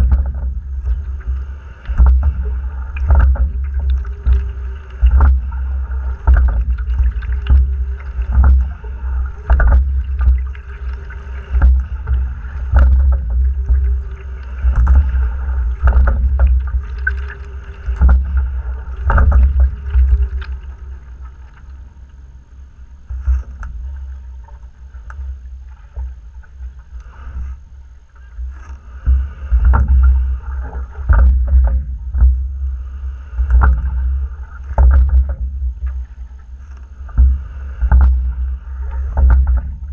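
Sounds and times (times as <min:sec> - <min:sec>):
oars knocking: 0:00.0 - 0:21.5
low rumble: 0:00.0 - 0:39.9
water rushing along hull: 0:00.0 - 0:39.9.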